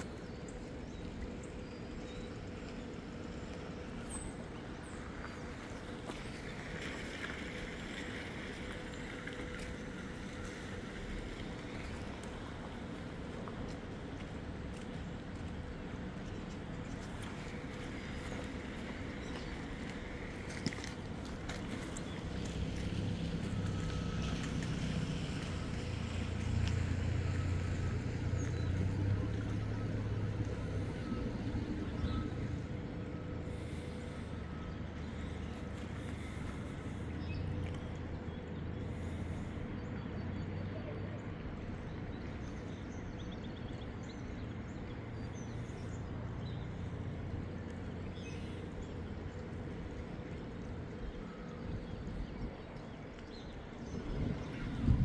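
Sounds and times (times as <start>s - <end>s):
wind buffeting microphone: 51.0s - 55.0s.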